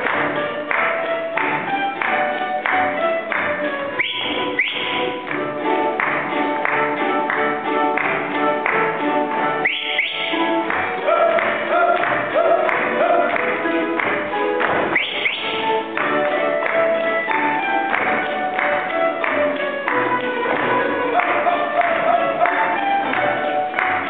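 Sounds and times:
balalaika orchestra playing folk dance: 0.0s - 24.0s
rising whistle-like calls: 4.0s - 5.2s, 9.6s - 10.4s, 14.9s - 15.6s
feet stamping: 9.7s - 24.0s.

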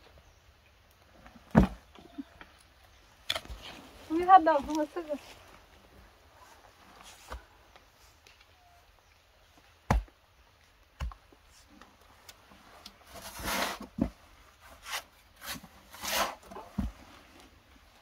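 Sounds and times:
digging tool striking earth: 9.9s - 10.2s
soil scraping: 11.5s - 17.8s.

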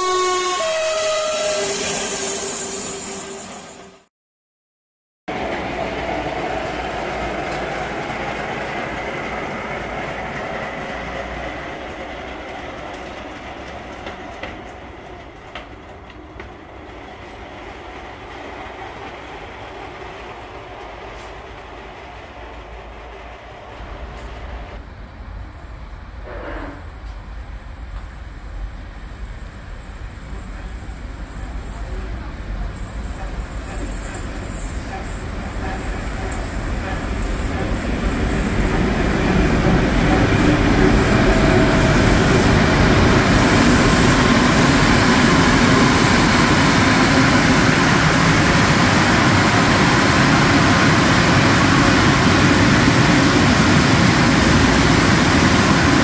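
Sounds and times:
train rumbling on rails: 0.0s - 4.1s, 5.3s - 56.0s
brief falling tone: 0.8s - 4.0s.

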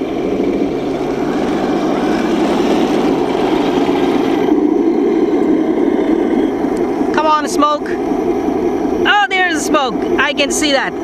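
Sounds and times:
simulated engine sound from speaker: 0.0s - 11.0s.

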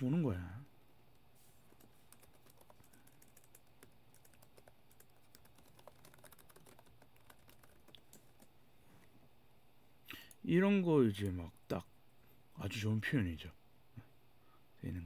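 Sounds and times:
faint keyboard typing: 0.6s - 8.6s, 11.1s - 11.8s.

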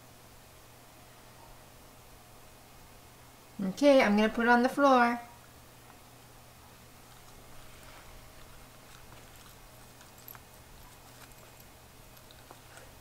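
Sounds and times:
dog chewing broccoli: 7.0s - 13.0s.

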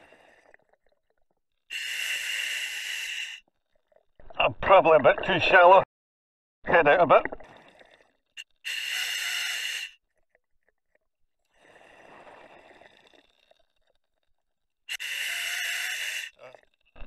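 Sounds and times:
regulator inhalation hiss: 1.7s - 3.4s, 8.6s - 9.9s, 14.9s - 16.4s.

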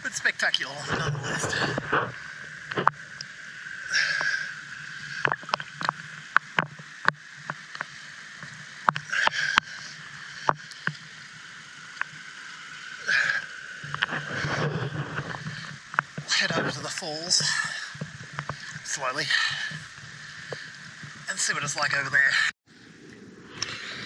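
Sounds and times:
water splashing and lapping: 0.0s - 24.0s
sharp drip-like clicks: 2.4s - 3.4s, 4.0s - 12.3s, 13.8s - 14.2s, 15.2s - 16.3s, 16.9s - 21.3s.

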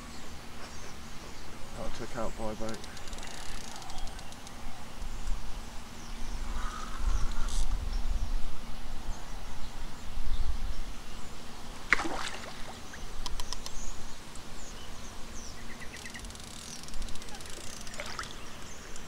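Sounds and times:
wind rumble on microphone: 4.8s - 11.3s
fish splashing at water surface: 11.9s - 12.8s
sharp clicks: 13.2s - 13.8s.

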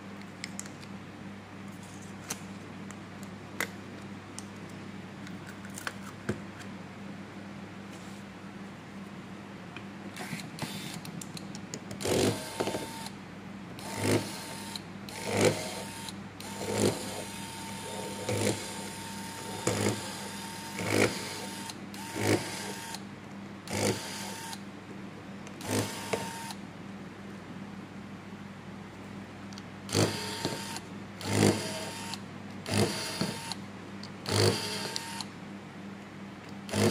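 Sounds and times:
electric screwdriver whirring: 13.8s - 23.0s, 25.6s - 26.6s, 29.9s - 33.6s, 34.3s - 35.3s, 36.7s - 36.9s.

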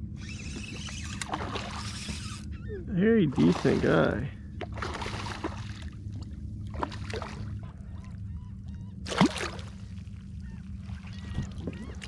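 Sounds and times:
landing net splashing into water: 1.2s - 1.9s, 3.3s - 5.9s, 9.1s - 9.8s
fish splashing at water surface: 3.4s - 4.1s, 4.8s - 5.9s.

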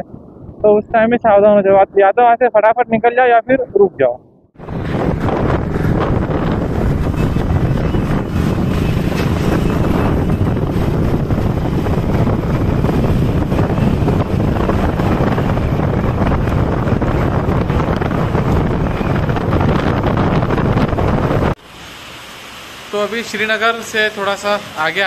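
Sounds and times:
wind rush on microphone: 0.0s - 21.6s
road noise: 0.0s - 25.0s
motorcycle engine running: 4.6s - 21.5s.

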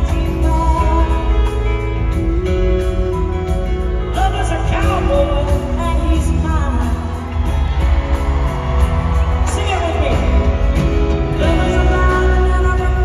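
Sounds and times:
woman singing lead: 0.0s - 3.4s, 11.3s - 13.0s
country band with guitars: 0.0s - 13.0s.

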